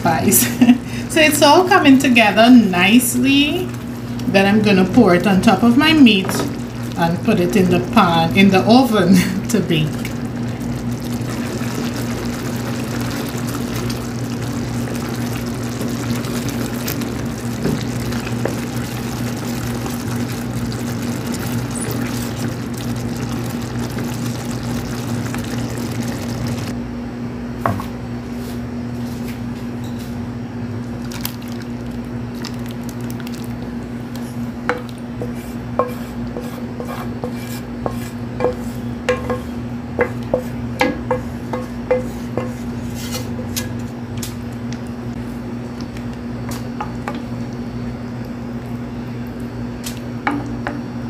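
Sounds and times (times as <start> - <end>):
steady low hum: 0.0 - 51.0
wooden spoon stirring thick sauce: 9.5 - 26.7
sauce pouring over meat: 10.0 - 26.7.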